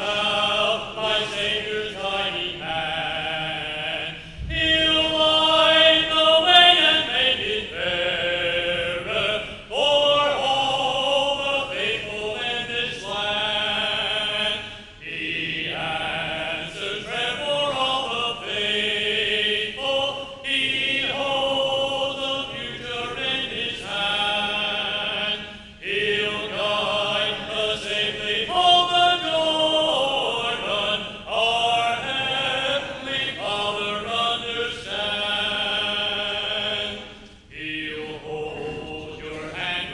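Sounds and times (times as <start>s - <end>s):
man singing into microphone: 0.0s - 14.6s
congregation singing a hymn: 0.0s - 39.9s.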